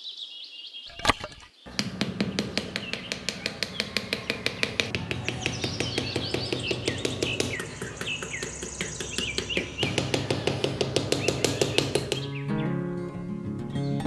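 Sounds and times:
birds chirping: 0:00.0 - 0:12.8
small hammer tapping wooden posts: 0:01.7 - 0:12.3
music with held notes: 0:12.2 - 0:14.0.

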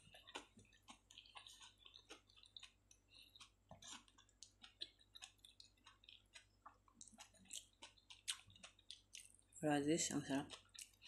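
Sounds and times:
chewing food: 0:00.0 - 0:11.0.

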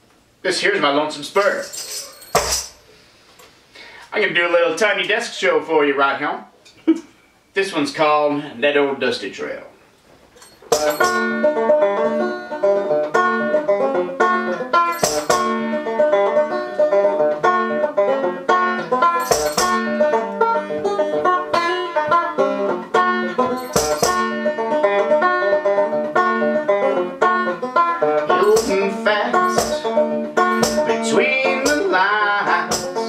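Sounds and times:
banjo picking: 0:10.4 - 0:33.0.

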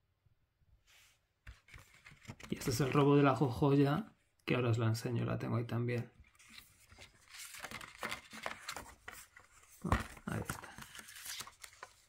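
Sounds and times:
paper rustling: 0:01.5 - 0:03.3, 0:06.2 - 0:12.0.

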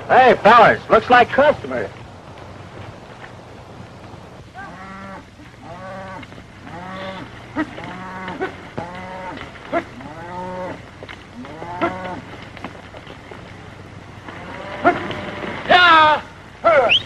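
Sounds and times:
cattle mooing: 0:04.6 - 0:12.4, 0:14.2 - 0:15.7
sharp cracks: 0:06.2 - 0:17.0.

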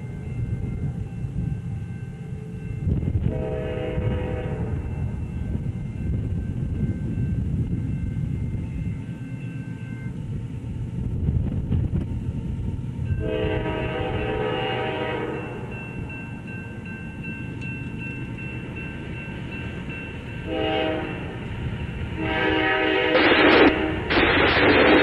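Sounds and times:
low train rumble: 0:00.0 - 0:25.0
train horn blasts: 0:02.8 - 0:05.2, 0:13.1 - 0:15.8, 0:20.4 - 0:24.9.

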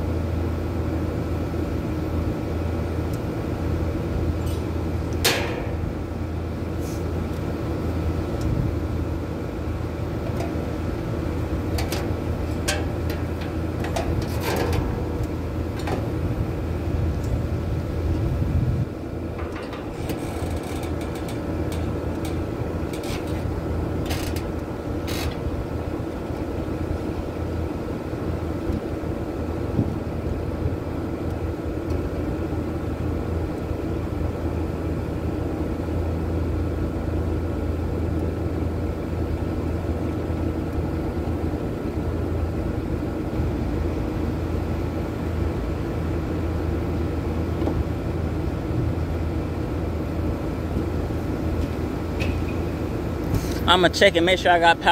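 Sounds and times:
air conditioner unit humming: 0:00.0 - 0:54.9.

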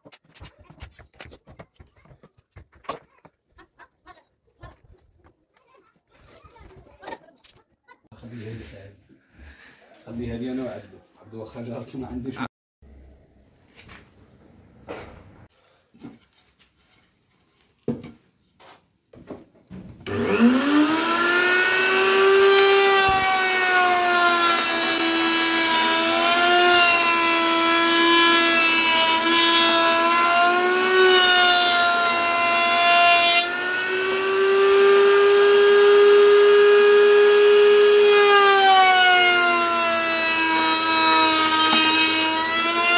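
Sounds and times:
electric wood router running: 0:20.1 - 0:42.9.

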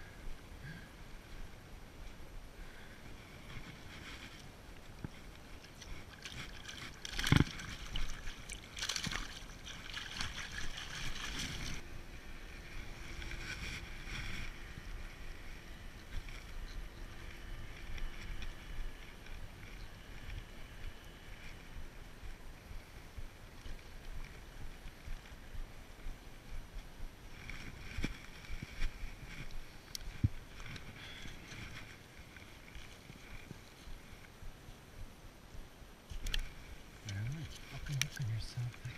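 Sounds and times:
light wind: 0:00.0 - 0:38.9
soft lapping water: 0:02.6 - 0:35.0
water splashing and sloshing: 0:03.5 - 0:15.1.

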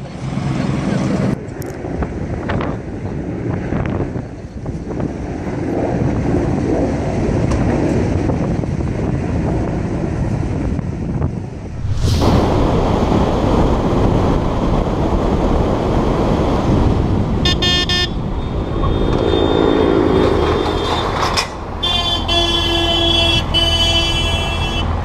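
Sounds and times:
wind noise on microphone: 0:01.1 - 0:25.0
horn beeps: 0:17.4 - 0:18.2.

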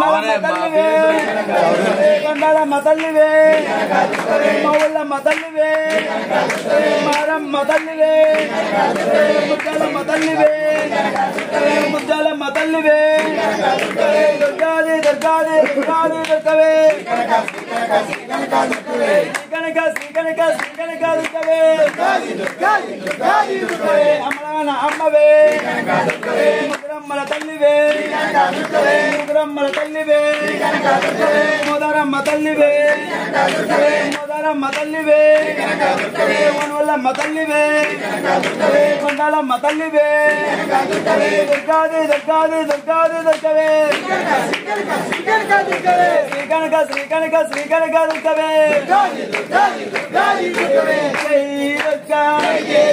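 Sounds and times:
hand clapping: 0:00.0 - 0:52.9
people singing devotional song: 0:00.0 - 0:52.9.

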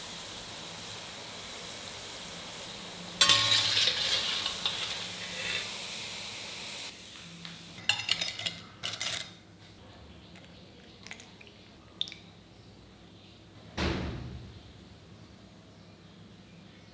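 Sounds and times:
hot oil sizzling: 0:00.0 - 0:08.5
soup pouring with splash: 0:10.4 - 0:12.3.

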